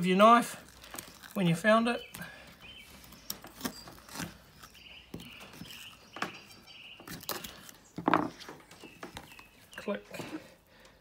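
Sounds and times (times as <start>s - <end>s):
faint high chirping: 2.0s - 10.0s.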